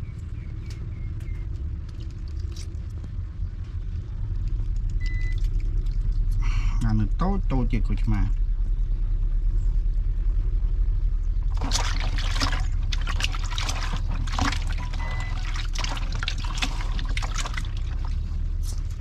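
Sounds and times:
steady low hum: 0.0 - 19.0
liquid pouring and splashing: 11.5 - 18.6.

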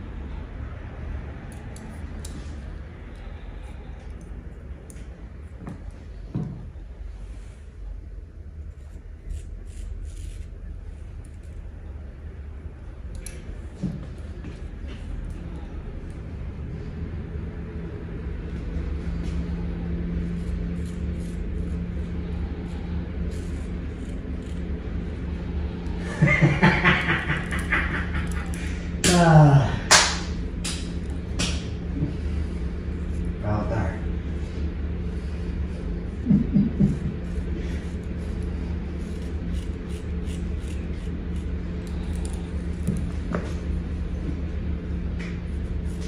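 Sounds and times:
steady low hum: 0.0 - 46.0
razor scraping scalp: 8.7 - 10.6, 20.2 - 25.3, 37.2 - 43.2
person laughing: 26.0 - 29.8, 36.1 - 37.5.

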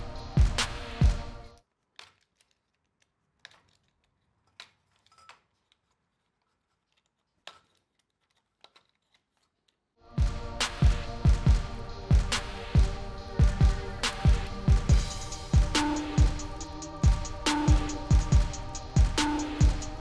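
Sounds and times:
background music: 0.0 - 1.6, 10.0 - 20.0.

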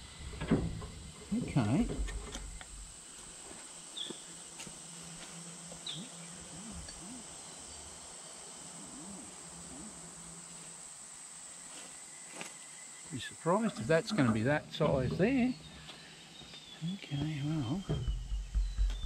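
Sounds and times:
high-pitched insect chorus: 0.0 - 19.0
bird chirps: 5.8 - 7.8, 13.7 - 19.0.

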